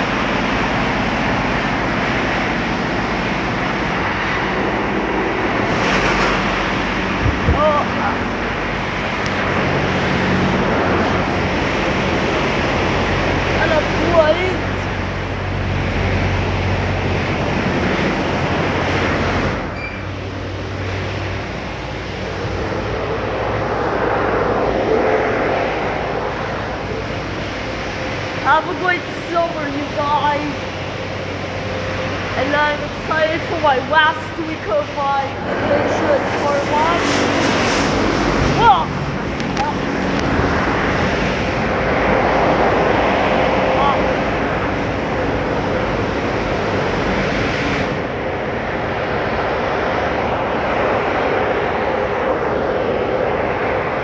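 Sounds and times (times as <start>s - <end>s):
automatic car wash running: 0.0s - 54.0s
low hum: 0.0s - 54.0s.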